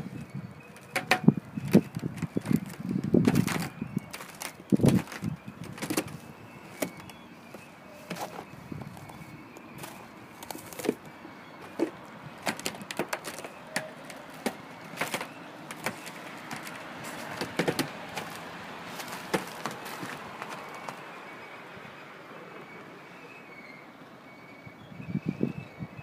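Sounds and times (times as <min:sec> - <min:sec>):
steady background noise: 0:00.0 - 0:26.0.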